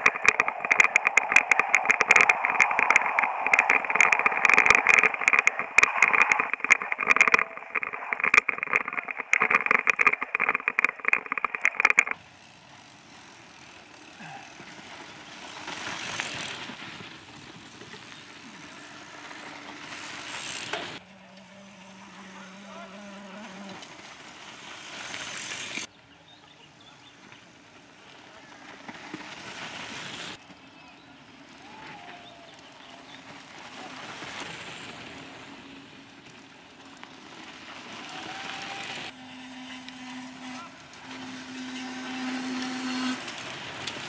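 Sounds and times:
bike rattling and clattering: 0.0 - 21.0, 31.7 - 39.8, 40.6 - 44.0
bike riding through dirt: 0.0 - 44.0.

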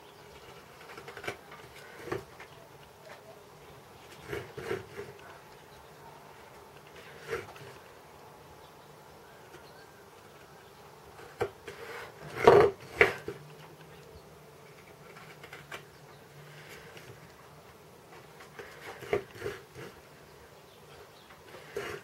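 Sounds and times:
short knocks and scrapes: 0.4 - 2.5, 4.1 - 5.4, 11.2 - 13.4, 18.1 - 20.0, 21.3 - 22.0.

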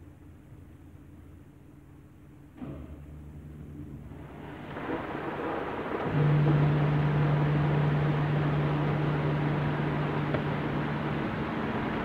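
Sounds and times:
machine hum: 0.0 - 12.0
car wash water spraying: 4.0 - 12.0.

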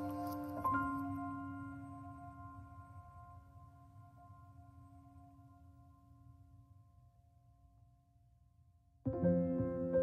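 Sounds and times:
bell-like ringing tones: 0.0 - 2.2.

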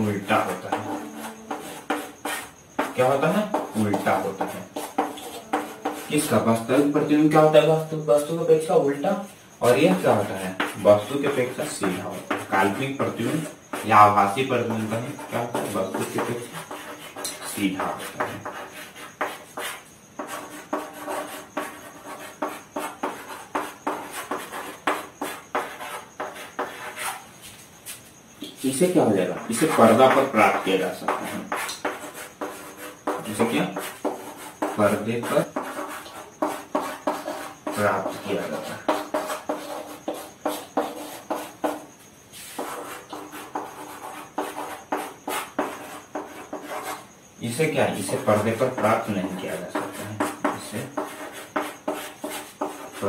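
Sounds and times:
chalk tapping and scraping on blackboard: 0.0 - 8.3, 9.1 - 53.0.

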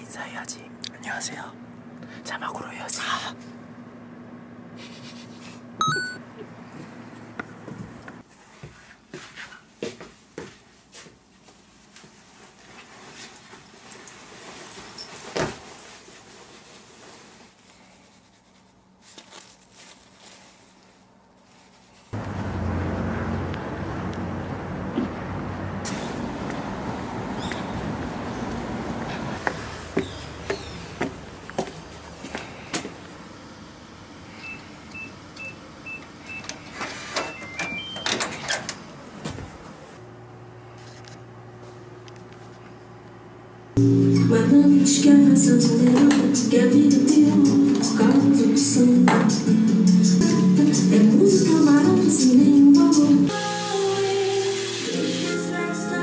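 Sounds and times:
electronic unlock tune: 5.8 - 6.2, 43.8 - 46.0
keypad beeps: 5.8 - 6.2.

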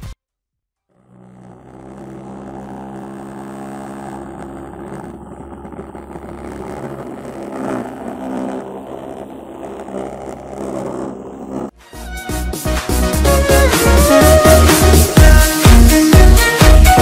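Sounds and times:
vibration motor buzzing hum: 0.9 - 11.7, 13.5 - 17.0.

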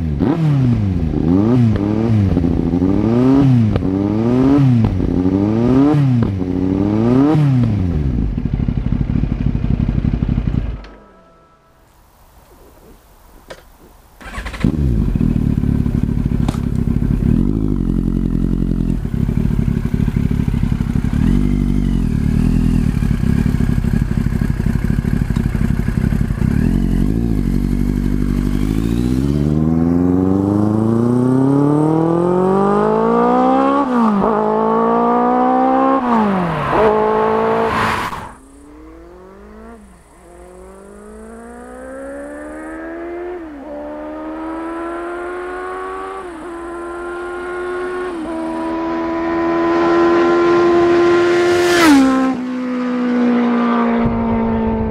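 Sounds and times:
motorcycle accelerating through gears: 0.0 - 11.0, 14.2 - 54.9
motorcycle idling with throttle blips: 8.0 - 11.0, 14.2 - 28.8.

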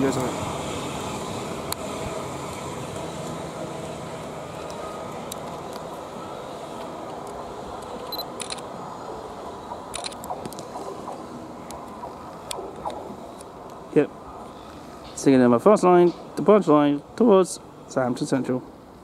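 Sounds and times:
electric train pulling away: 0.0 - 16.8.

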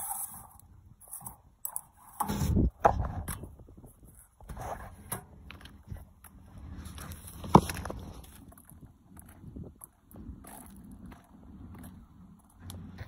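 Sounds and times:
footsteps on asphalt: 5.4 - 13.0.

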